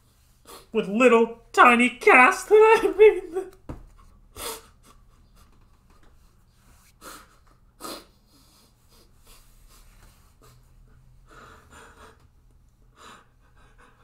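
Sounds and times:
man crying quietly: 0:02.5 - 0:03.6
sniffs: 0:04.3 - 0:05.0, 0:06.6 - 0:12.2.

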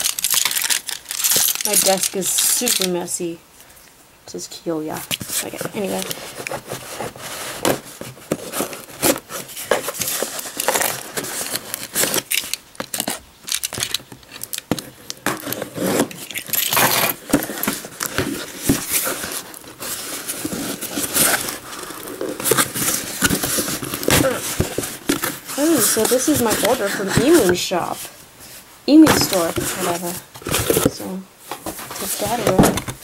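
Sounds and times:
packing tape ripping: 0:00.0 - 0:03.0, 0:05.1 - 0:27.5
cardboard rubbing and tearing: 0:05.2 - 0:28.1, 0:28.9 - 0:33.0.

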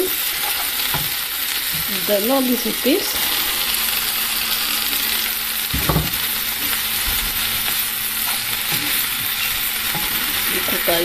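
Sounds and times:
vegetables sizzling in a pan: 0:00.0 - 0:11.0.

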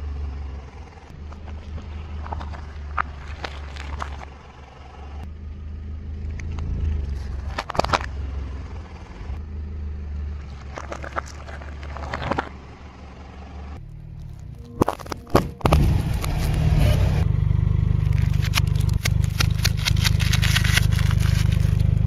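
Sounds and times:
car idling: 0:00.0 - 0:22.0
tyre crushing brittle objects: 0:01.3 - 0:04.3, 0:10.4 - 0:12.5, 0:14.0 - 0:16.6, 0:18.0 - 0:22.0.

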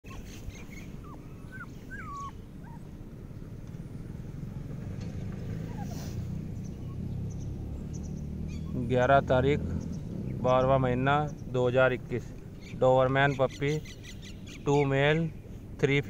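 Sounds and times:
puppies whimpering: 0:00.0 - 0:03.1, 0:05.6 - 0:06.2.

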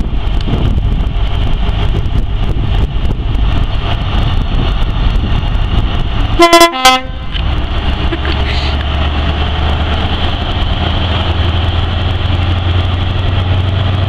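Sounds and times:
diesel engine running: 0:00.0 - 0:14.0
two-tone train horn: 0:06.4 - 0:07.4.

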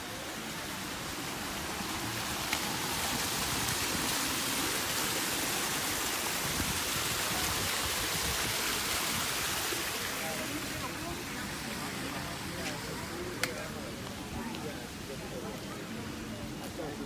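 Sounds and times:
waterfall splashing over rocks: 0:00.0 - 0:17.0.

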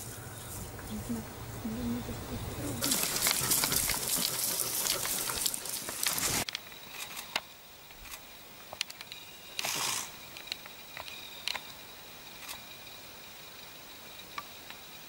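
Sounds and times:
rustling on dry leaves: 0:00.0 - 0:07.2
porcupine quills clicking: 0:02.8 - 0:09.8.

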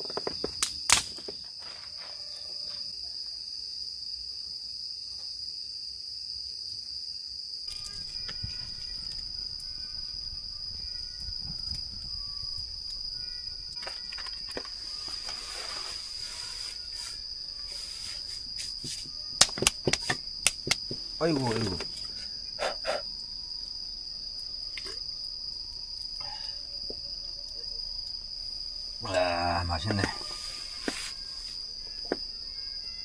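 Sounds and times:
twig fire crackling: 0:00.0 - 0:02.2, 0:07.7 - 0:32.3
night insects trilling: 0:00.0 - 0:33.0
sharp snap: 0:00.6 - 0:01.3, 0:19.4 - 0:20.9.

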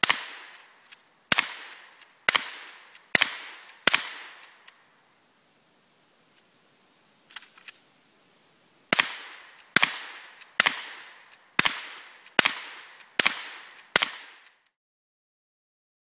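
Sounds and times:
shotgun shots echoing: 0:00.0 - 0:00.7, 0:01.3 - 0:04.6, 0:08.9 - 0:14.6
quiet clicks: 0:01.7 - 0:05.1, 0:06.3 - 0:06.5, 0:09.3 - 0:14.8.

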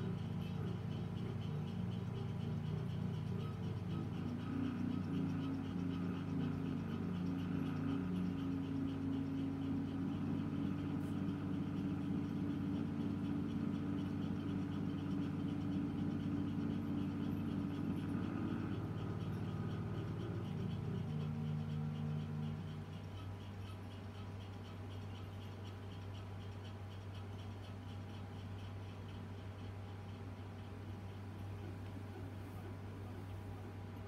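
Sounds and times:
low sustained drone music: 0:00.0 - 0:26.2
faint regular ticking: 0:00.0 - 0:34.0.

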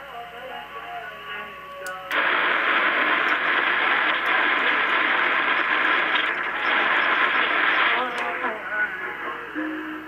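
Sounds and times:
radio static rush: 0:02.1 - 0:09.3.

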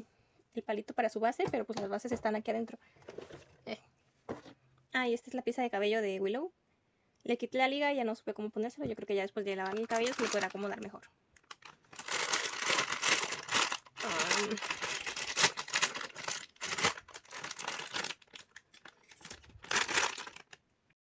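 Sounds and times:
scissors cutting plastic: 0:09.6 - 0:10.7, 0:11.4 - 0:20.6
plastic wrapper crinkling and tearing: 0:09.6 - 0:20.6.

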